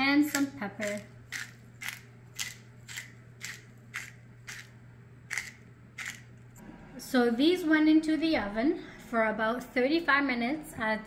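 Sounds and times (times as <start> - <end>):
pepper mill grinding: 0.2 - 6.5.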